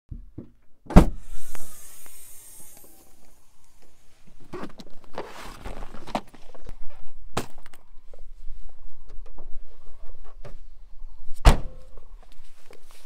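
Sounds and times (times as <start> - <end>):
tailgate opening hiss: 0.9 - 4.7
car tailgate unlatching thump: 11.4 - 11.8.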